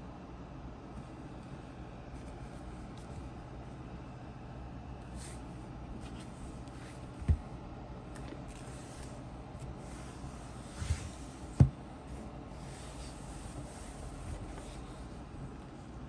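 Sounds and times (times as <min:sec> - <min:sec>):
book pages rustling: 0:05.1 - 0:07.5, 0:08.1 - 0:15.2
dull knocks of book: 0:07.1 - 0:07.5, 0:11.5 - 0:11.8.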